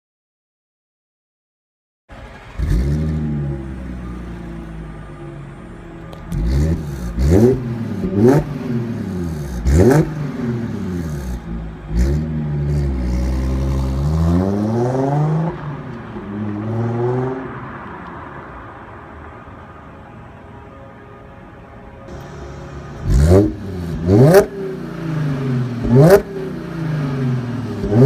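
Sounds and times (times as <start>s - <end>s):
car engine revving: 2.1s - 5.5s, 6.1s - 18.4s, 22.1s - 28.0s
car accelerating hard: 6.3s - 18.0s, 23.0s - 28.0s.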